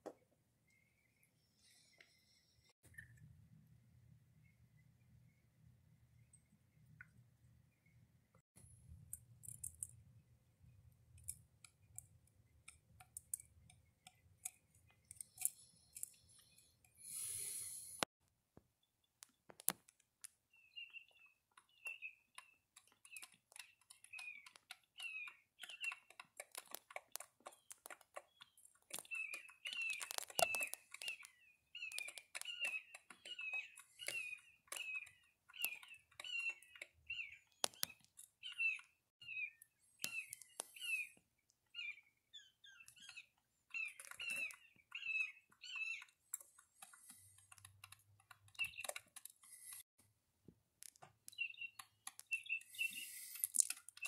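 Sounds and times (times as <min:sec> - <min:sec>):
woodpecker bill pecking: 0:09.0 - 0:17.6, 0:18.8 - 0:49.8, 0:50.7 - 0:54.0
sharp clicks: 0:21.1 - 0:38.9, 0:42.8 - 0:49.8, 0:50.8 - 0:54.0.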